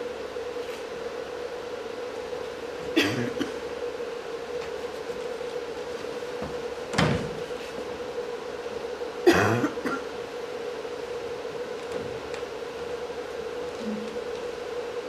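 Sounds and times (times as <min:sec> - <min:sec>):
steady electrical hum: 0:00.0 - 0:15.0
man coughing gasps: 0:03.0 - 0:03.6, 0:09.3 - 0:10.1.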